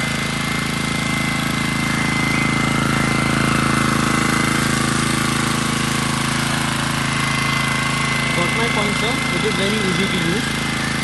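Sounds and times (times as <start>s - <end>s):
generator engine running: 0.0s - 11.0s.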